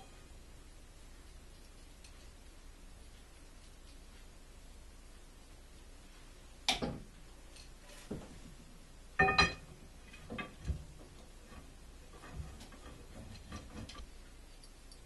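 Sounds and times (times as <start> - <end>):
metal clanks and knocks: 9.2 - 14.0.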